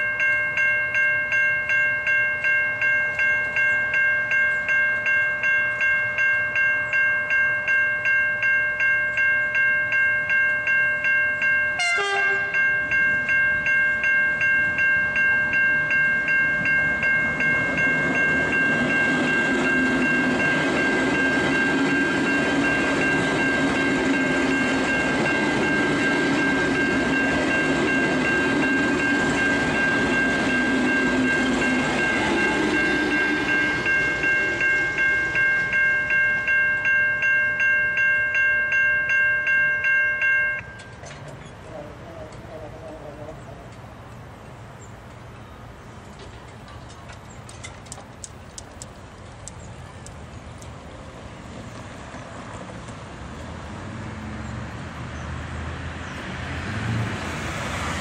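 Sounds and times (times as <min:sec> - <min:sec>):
level crossing warning bell: 0:00.0 - 0:43.9
train rumble and wheel noise: 0:00.0 - 0:58.0.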